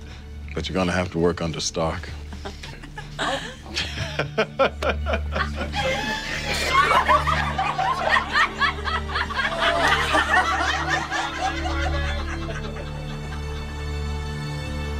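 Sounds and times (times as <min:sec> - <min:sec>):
soft background music: 0:00.0 - 0:14.9
people laughing: 0:02.3 - 0:14.1.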